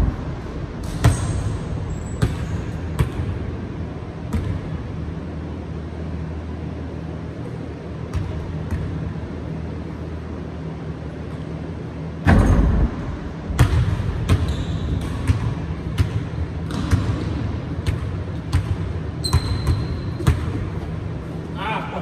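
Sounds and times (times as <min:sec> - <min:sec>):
steady low hum: 0:00.0 - 0:22.0
shoe squeaks: 0:01.1 - 0:02.8, 0:14.4 - 0:15.2, 0:19.2 - 0:20.3
basketball bouncing on wooden floor: 0:13.6 - 0:20.8.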